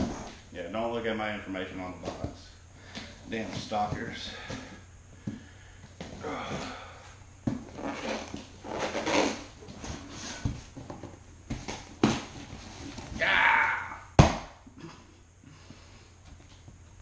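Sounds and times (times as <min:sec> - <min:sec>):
cardboard and tape rustling: 0:07.4 - 0:13.4.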